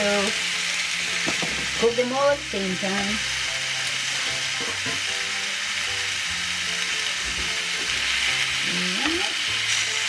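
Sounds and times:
food sizzling in a pan: 0.0 - 10.0.

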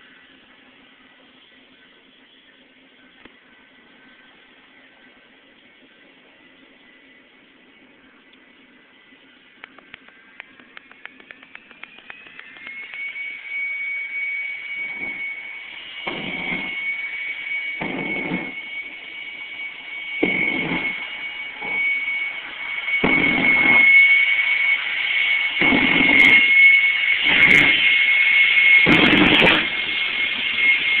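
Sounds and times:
jet engine whine: 0.0 - 31.0
deep rushes of jet exhaust: 12.8 - 31.0.

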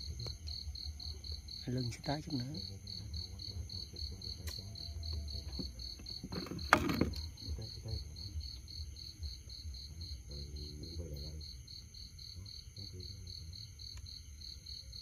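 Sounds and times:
cricket chirping: 0.0 - 15.0.

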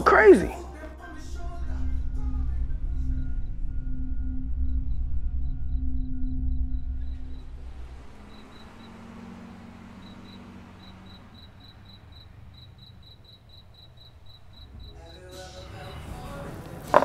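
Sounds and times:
faint low rumble: 0.6 - 8.2
crickets chirping: 1.5 - 17.0.

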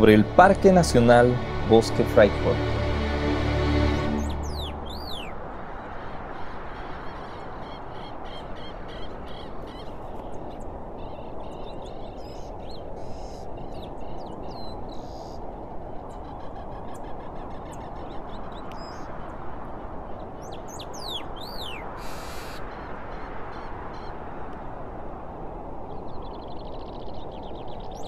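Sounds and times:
birds chirping: 0.0 - 5.4, 20.2 - 24.3
steady rushing noise: 0.0 - 7.6
high bird calls: 3.8 - 19.1, 20.4 - 24.3.

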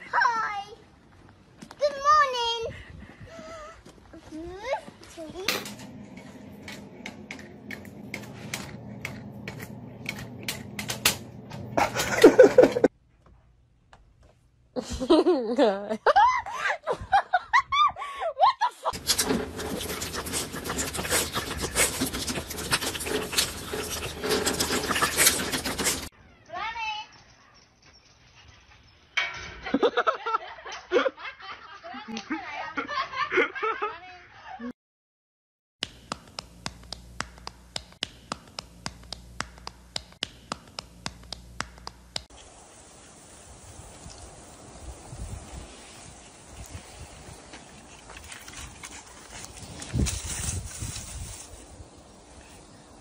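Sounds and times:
faint wind noise: 2.4 - 7.3, 42.4 - 53.0
dog growling and snarling: 19.0 - 26.1
rustling crackle: 42.3 - 51.8.

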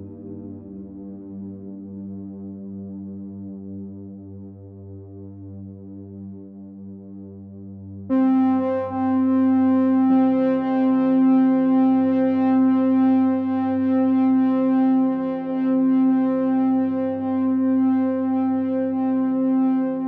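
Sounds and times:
sustained synthesizer chord: 8.1 - 20.0.

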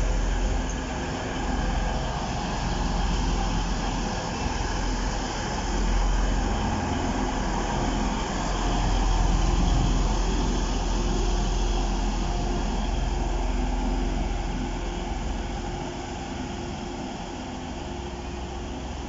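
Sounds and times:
diesel engines humming: 0.0 - 19.0
train wheels rumbling on rail: 0.0 - 19.0.

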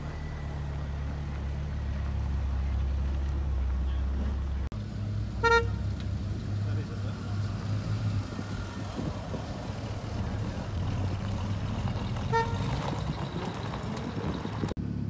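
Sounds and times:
car engine running: 0.0 - 15.0
car horn toot: 5.4 - 5.9, 12.2 - 13.0.

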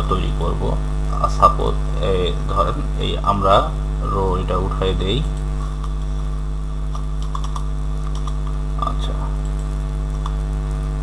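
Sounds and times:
low electrical hum: 0.0 - 11.0
keyboard keys clicking: 6.9 - 8.6.

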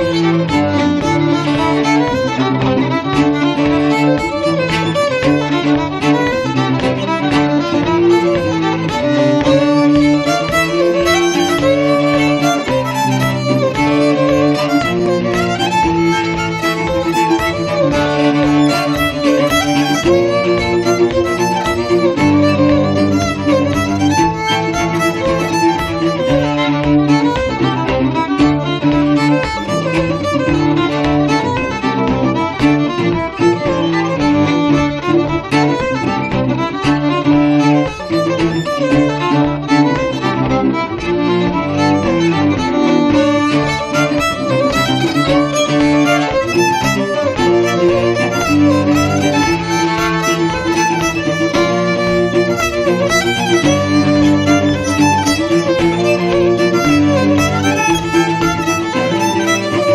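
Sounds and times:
fiddle playing quick melody: 0.0 - 59.9
sustained low cello notes: 0.0 - 59.9.

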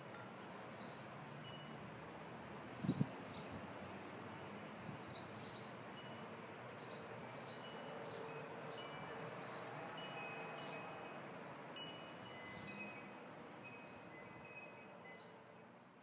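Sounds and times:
faint high chiming tones: 7.7 - 15.4.

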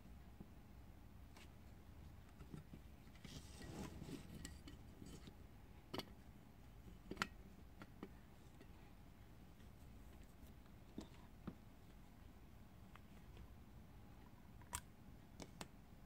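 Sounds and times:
soft scraping rustle: 2.2 - 5.3.

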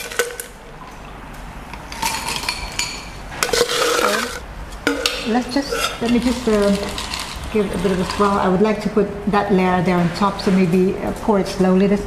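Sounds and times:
ice cubes clinking into glass: 2.0 - 4.4, 6.1 - 8.3.

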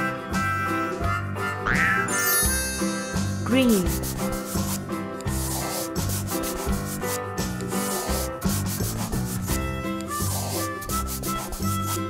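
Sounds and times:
children's background music: 0.0 - 12.0
crayon scribbling on paper: 3.6 - 12.0.

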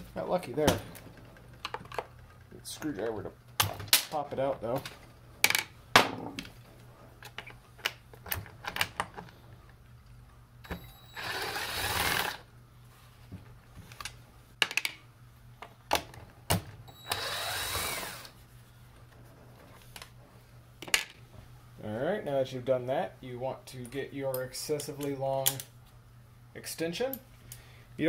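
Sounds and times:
impact driver running: 10.7 - 12.4, 17.0 - 18.3.

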